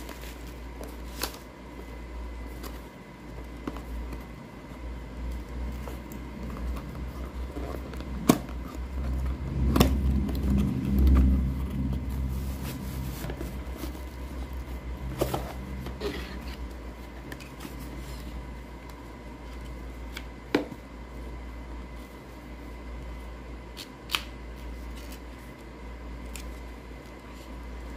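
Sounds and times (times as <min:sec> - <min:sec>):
cardboard packaging rustling: 0:00.0 - 0:20.1
low rumble: 0:07.4 - 0:16.0.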